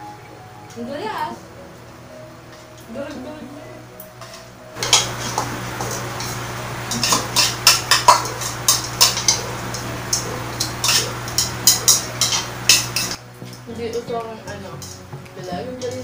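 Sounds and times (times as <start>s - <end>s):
steady low hum: 3.4s - 13.8s
chopsticks clicking on plastic bowls: 4.8s - 13.2s.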